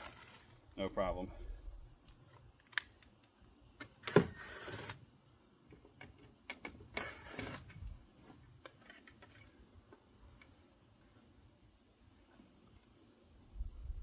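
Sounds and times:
cordless drill driving screws: 4.0 - 5.0, 6.9 - 7.7.

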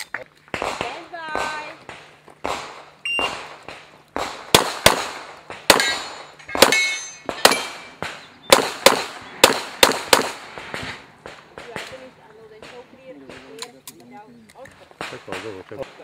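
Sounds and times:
pistol shots with echo: 0.5 - 12.0.

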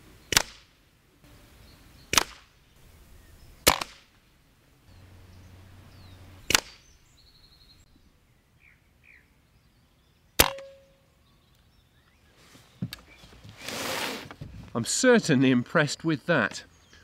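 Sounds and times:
air rifle shots: 0.3 - 0.8, 2.1 - 2.6, 3.6 - 4.1, 6.4 - 6.9, 10.4 - 10.8.

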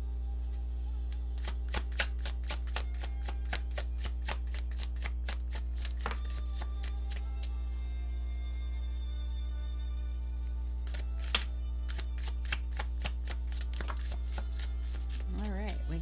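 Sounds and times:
cards being shuffled: 1.1 - 7.6, 10.8 - 15.8.

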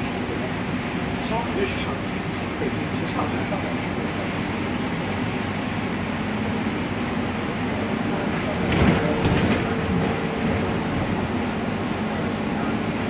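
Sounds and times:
bus engine hum: 0.0 - 13.0
wet road noise: 0.0 - 13.0
clattering noise: 8.6 - 10.0.

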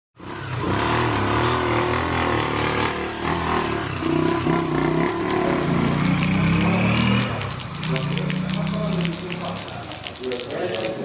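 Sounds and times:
vehicle engine running: 0.2 - 9.3.

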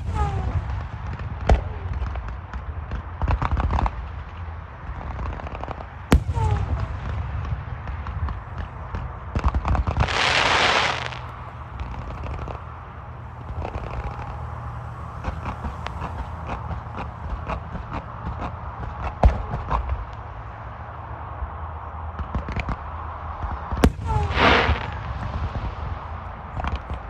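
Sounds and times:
fireworks crackling pops: 0.0 - 20.4, 22.1 - 27.0
firework sharp bang: 5.2 - 12.6, 23.4 - 27.0
firework hiss: 9.4 - 12.7, 23.8 - 26.9.

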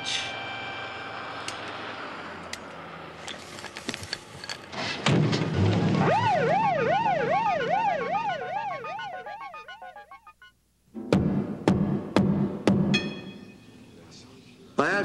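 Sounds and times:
police siren yelp: 0.0 - 1.4, 6.0 - 10.5.

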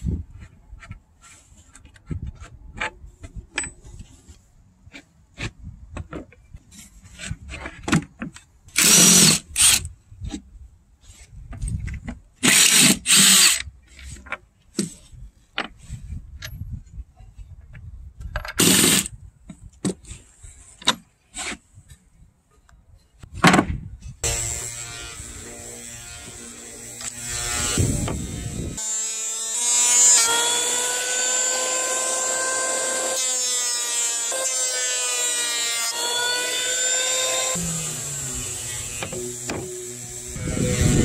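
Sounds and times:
impact driver driving screws: 8.8 - 9.9, 12.4 - 13.7, 18.6 - 19.1.

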